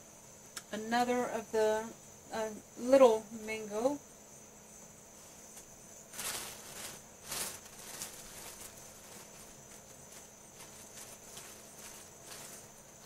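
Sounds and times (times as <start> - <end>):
high insect buzz: 0.0 - 13.0
rustling in cardboard box: 5.2 - 13.0.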